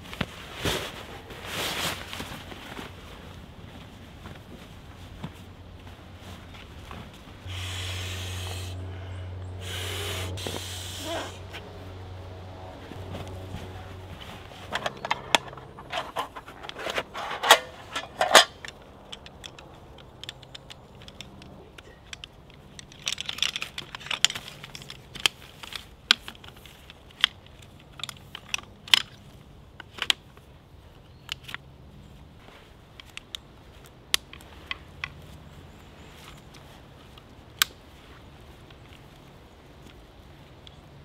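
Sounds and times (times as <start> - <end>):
rustling of bedding: 0.0 - 7.5, 10.4 - 20.0
metal clicks of table poles: 14.6 - 30.4.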